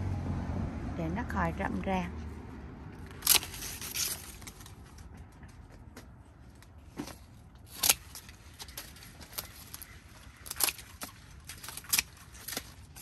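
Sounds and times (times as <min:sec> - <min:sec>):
pruning shears snipping: 0:03.0 - 0:04.6, 0:07.0 - 0:13.0.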